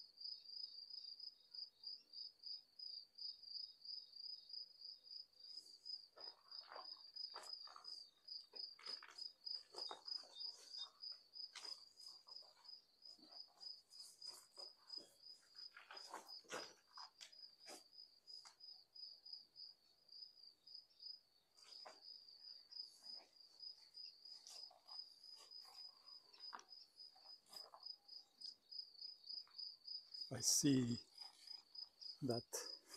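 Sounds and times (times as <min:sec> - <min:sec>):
cricket trill: 0:00.0 - 0:32.9
footsteps on rubble: 0:06.1 - 0:18.6, 0:22.7 - 0:28.0.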